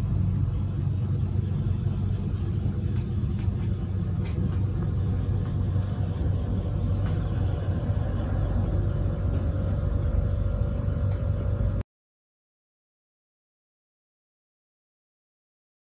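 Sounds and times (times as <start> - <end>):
low rumble: 0.0 - 11.8.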